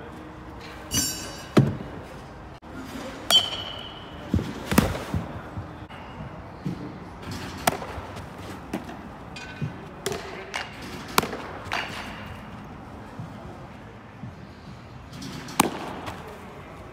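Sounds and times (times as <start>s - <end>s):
metallic clink: 0.9s - 1.6s
baseballs smacking into a mitt: 3.3s - 5.5s, 6.6s - 12.4s, 15.5s - 16.4s.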